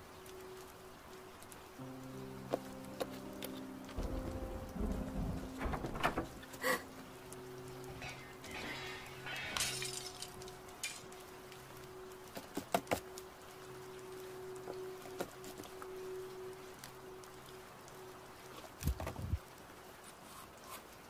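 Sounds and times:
steady low drone: 1.8s - 12.0s.

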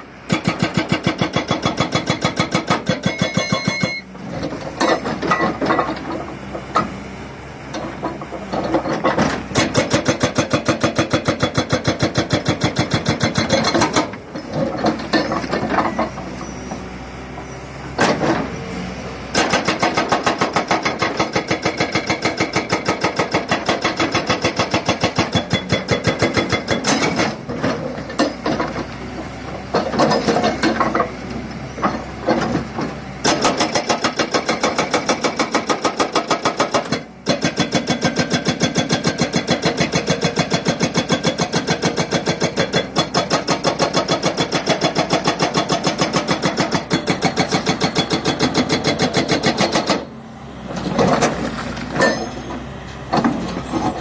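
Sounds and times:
hydraulic rock breaker hammering rock: 0.3s - 6.9s, 7.8s - 16.2s, 19.3s - 28.8s, 31.8s - 50.1s
diesel engine running: 38.9s - 54.0s.

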